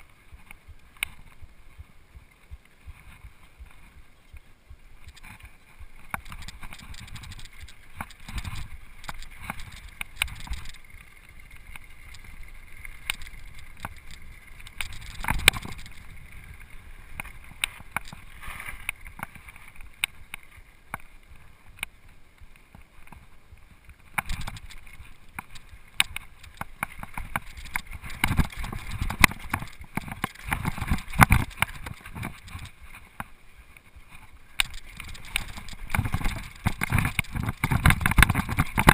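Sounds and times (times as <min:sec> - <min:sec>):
bike chain and frame clattering: 0:05.0 - 0:20.0, 0:24.2 - 0:33.0, 0:34.6 - 0:38.9.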